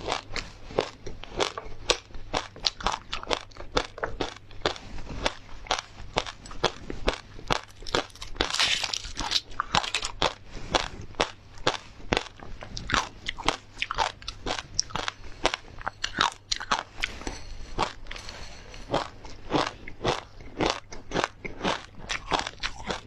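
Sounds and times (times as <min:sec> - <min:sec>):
crunching bites of frozen ice treat: 0:00.8 - 0:10.4
foil crinkling: 0:07.8 - 0:10.2.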